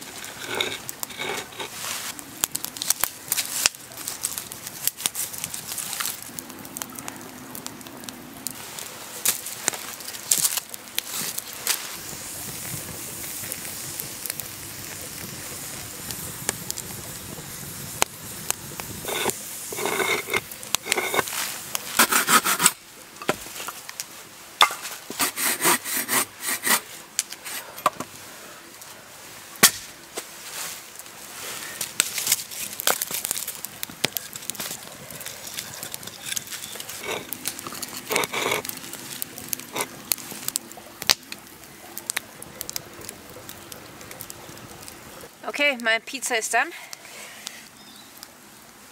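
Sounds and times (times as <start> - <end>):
wood fire crackling: 0.0 - 48.9
hand saw cutting log: 22.0 - 22.8, 25.1 - 26.9.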